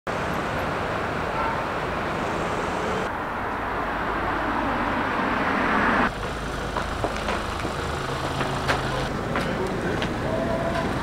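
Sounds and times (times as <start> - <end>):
road traffic: 0.1 - 11.0.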